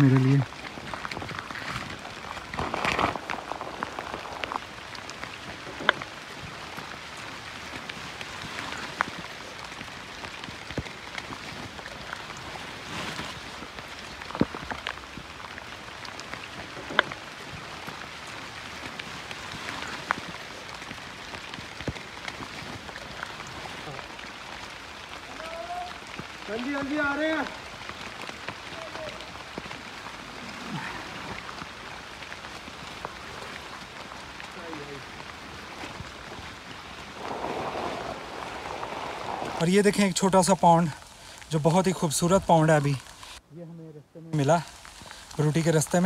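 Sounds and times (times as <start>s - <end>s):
steady rain hiss: 0.0s - 46.0s.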